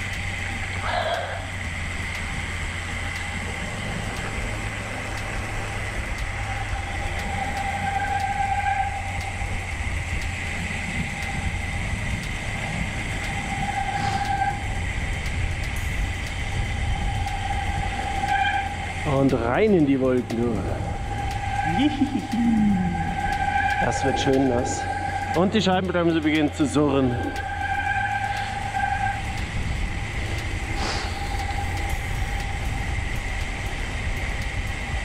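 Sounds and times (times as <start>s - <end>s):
disc brake whirring: 0.0s - 35.0s
tyres hissing on wet road: 0.0s - 35.0s
wind rushing over microphone: 9.0s - 35.0s.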